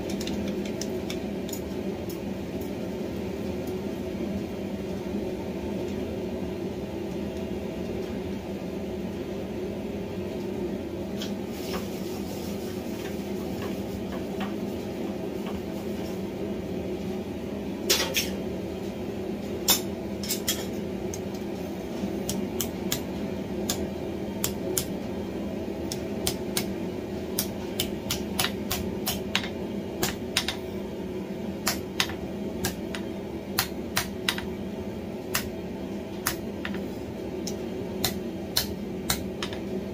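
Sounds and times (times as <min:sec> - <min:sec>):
steady mechanical hum: 0:00.0 - 0:39.9.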